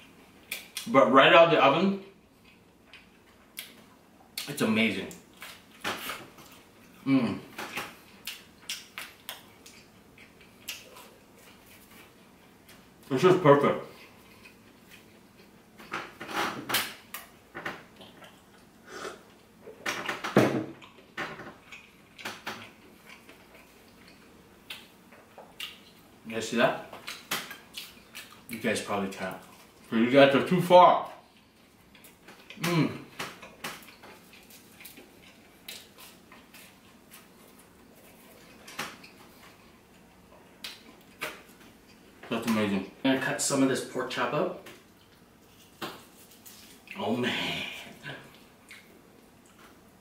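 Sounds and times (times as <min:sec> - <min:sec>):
person chewing pastry: 0:05.2 - 0:13.1, 0:13.9 - 0:15.9, 0:20.8 - 0:26.2, 0:26.9 - 0:28.6, 0:31.2 - 0:42.2, 0:44.8 - 0:50.0.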